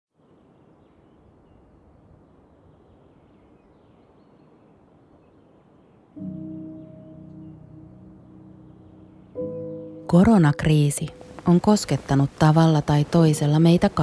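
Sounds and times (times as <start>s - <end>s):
faint background ambience: 0.2s - 14.0s
music with sustained low tones: 6.1s - 14.0s.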